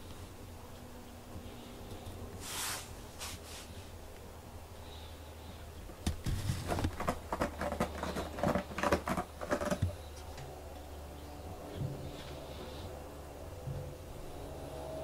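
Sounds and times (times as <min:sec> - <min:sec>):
cat scratching cardboard: 0:06.2 - 0:10.1.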